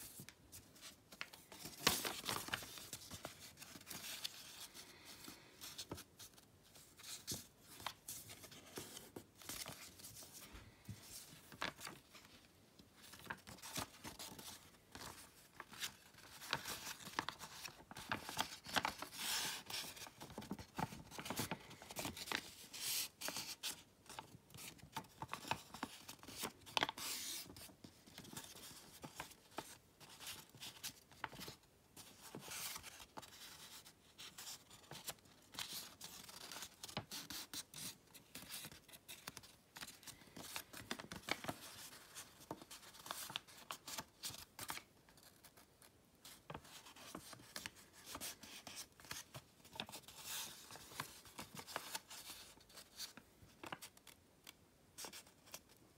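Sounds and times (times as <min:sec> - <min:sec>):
paper swishing along folds: 0:00.0 - 0:12.4
paper crinkling and rustling: 0:00.0 - 0:55.8.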